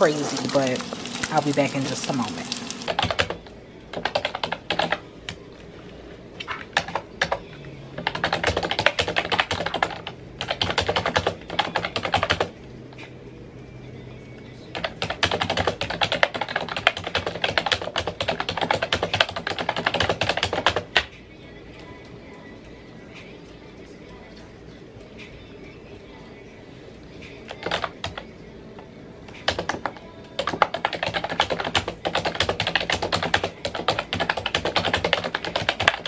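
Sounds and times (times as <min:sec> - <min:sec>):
fast keyboard typing: 0:00.0 - 0:05.0, 0:06.7 - 0:07.4, 0:08.0 - 0:12.5, 0:14.7 - 0:21.1, 0:27.5 - 0:28.2, 0:29.4 - 0:36.0.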